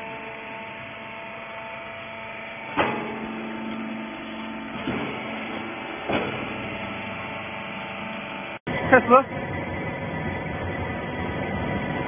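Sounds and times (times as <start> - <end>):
baler motor hum: 0.0 - 12.0
sharp machine clunks: 2.6 - 8.2.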